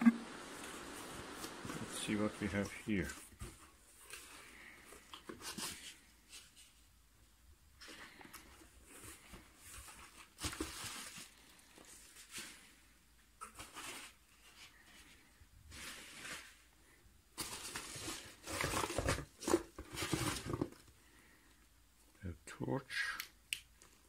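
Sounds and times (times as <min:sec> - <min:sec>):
packing material rustling: 0:17.4 - 0:20.9.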